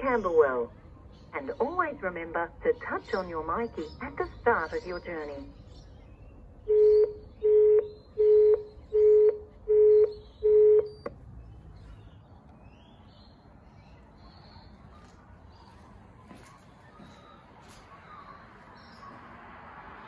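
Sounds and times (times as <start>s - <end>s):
intercom short beeps: 6.7s - 11.0s
intercom line click: 6.7s - 11.2s.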